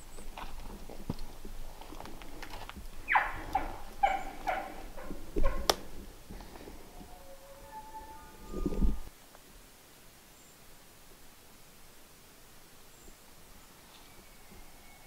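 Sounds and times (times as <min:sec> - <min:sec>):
short falling animal calls: 0:03.1 - 0:05.7.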